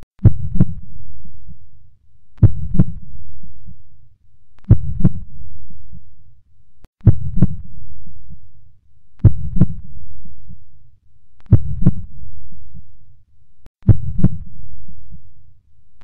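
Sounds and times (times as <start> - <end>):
heartbeat double thump: 0.2 - 1.6, 2.4 - 3.1, 4.7 - 5.4, 7.0 - 7.8, 9.2 - 9.9, 11.5 - 12.2, 13.8 - 15.2
low rumble: 0.2 - 4.1, 4.7 - 6.4, 7.0 - 10.9, 13.8 - 15.6.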